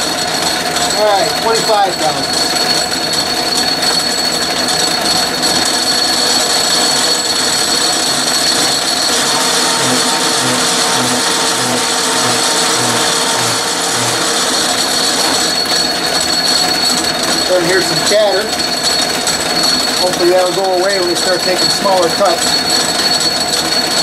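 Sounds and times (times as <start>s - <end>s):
metal lathe cutting with high ring: 0.0s - 24.0s
low repeating pulse: 7.6s - 16.8s.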